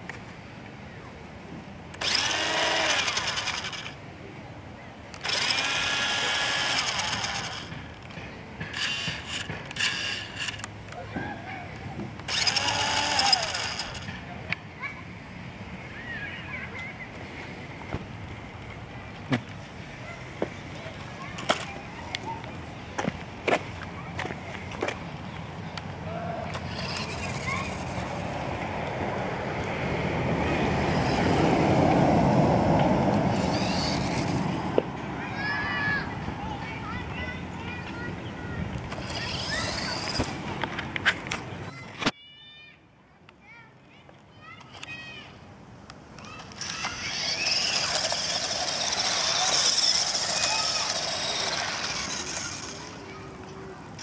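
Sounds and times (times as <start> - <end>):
electric motor and gearbox whirring: 1.9 - 4.0, 5.1 - 11.0, 12.1 - 14.3, 26.4 - 28.3, 33.1 - 34.7, 38.7 - 41.4, 46.2 - 53.4
toy car rushing over concrete: 1.9 - 4.0, 5.1 - 11.1, 12.1 - 14.4, 21.2 - 21.8, 26.4 - 28.4, 30.4 - 31.9, 32.8 - 35.9, 38.8 - 40.7, 46.2 - 54.0.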